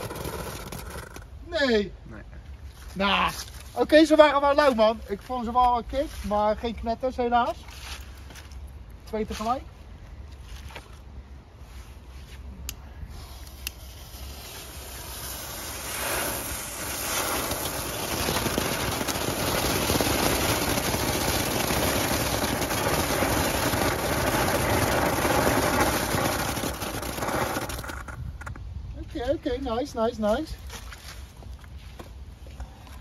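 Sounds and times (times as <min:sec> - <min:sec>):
fireworks spraying hiss: 0:00.0 - 0:01.2, 0:13.0 - 0:28.2.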